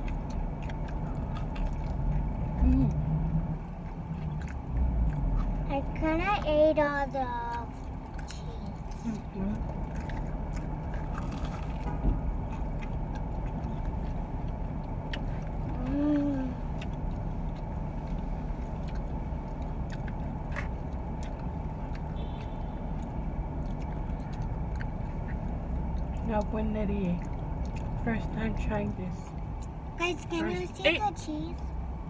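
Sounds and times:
car engine hum from cabin: 0.0 - 32.0
person humming: 15.8 - 16.6.

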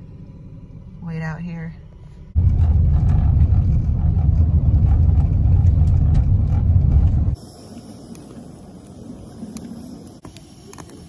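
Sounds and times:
car rumbling on dirt road: 2.3 - 7.4.

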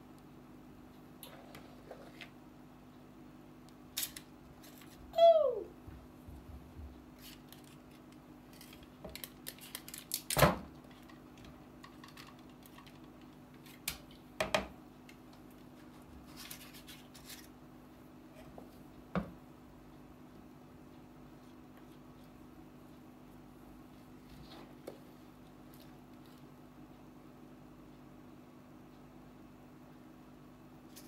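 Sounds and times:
faint steady hum: 0.0 - 31.0
paper liners rustling: 7.2 - 11.2, 15.7 - 17.6.

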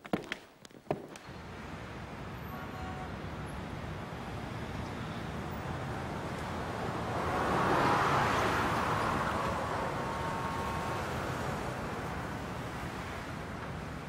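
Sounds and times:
traffic hum: 0.0 - 14.0
car passing: 3.1 - 14.0.

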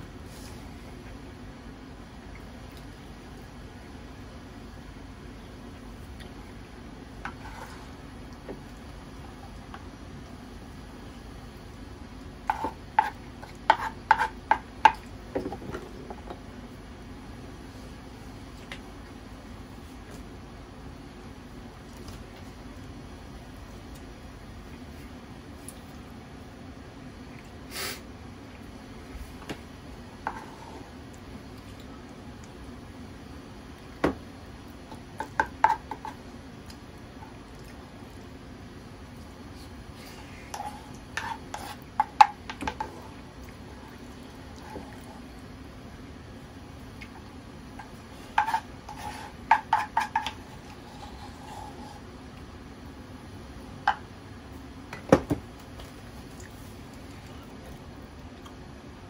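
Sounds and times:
low steady hum: 0.0 - 59.0
spoon knocking and scraping bowl: 12.5 - 15.9, 35.2 - 36.2, 40.5 - 43.0, 47.8 - 50.4
wooden spoon clacking on pan: 49.5 - 50.4.

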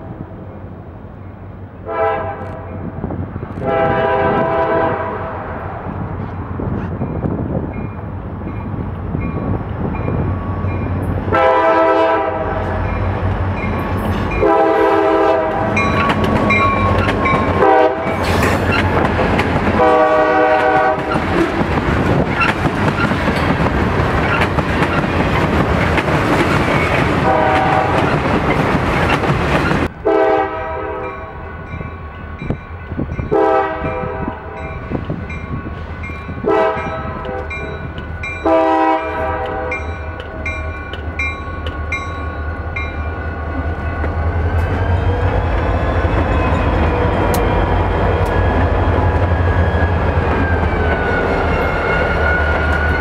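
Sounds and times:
train rumbling: 0.0 - 53.0
locomotive horn blowing: 1.8 - 2.8, 3.6 - 5.5, 11.3 - 13.0, 14.3 - 16.0, 16.7 - 18.4, 19.8 - 21.4, 27.2 - 28.2, 30.0 - 31.5, 33.3 - 34.7, 36.1 - 37.8, 38.4 - 40.5.

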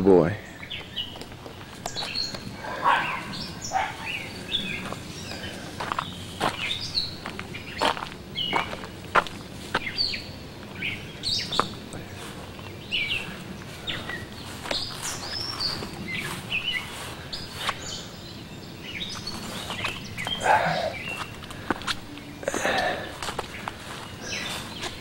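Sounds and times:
birds chirping: 0.0 - 25.0
rustling: 11.6 - 18.0.

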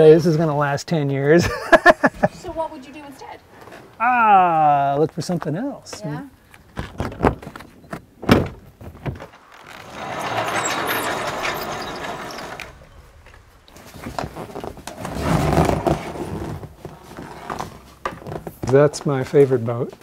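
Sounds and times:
wooden sliding door rolling open: 8.3 - 18.3.

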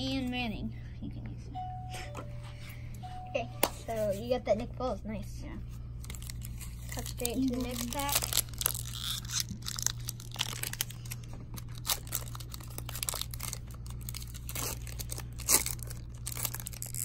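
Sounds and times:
steady low hum: 0.0 - 17.0
foil wrapper tearing and crinkling: 6.0 - 17.0.

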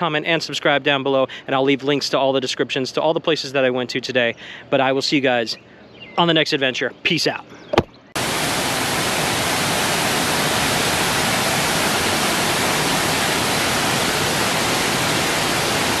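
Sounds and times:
waterfall rushing over rock: 8.2 - 16.0.

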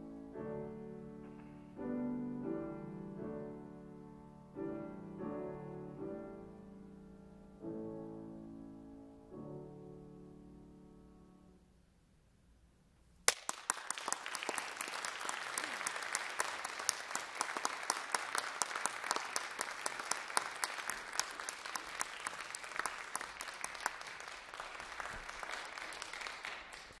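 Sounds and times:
audience applause: 13.3 - 27.0.

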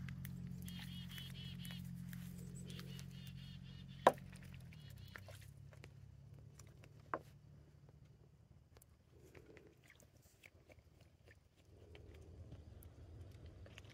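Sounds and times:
steady low hum: 0.0 - 13.9
faint high chirps: 0.5 - 5.4
geese splashing in water: 2.6 - 5.7.

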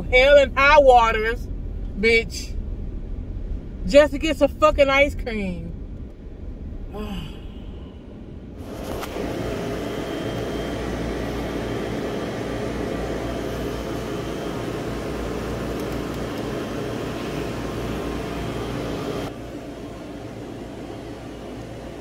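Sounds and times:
car interior rumble: 0.0 - 9.8
freezer fans and compressor humming: 8.6 - 22.0.

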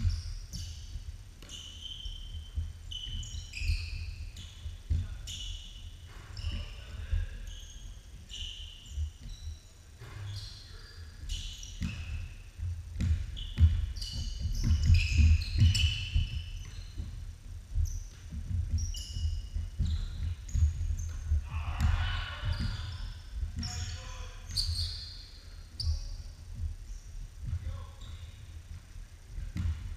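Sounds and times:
sneakers squeaking: 0.0 - 29.9
basketball bouncing on hardwood: 11.4 - 24.9, 29.4 - 29.9.

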